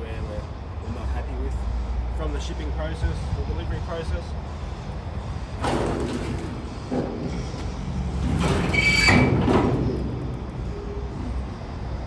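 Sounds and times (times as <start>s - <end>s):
metal drawer sliding and rattling: 5.6s - 10.2s.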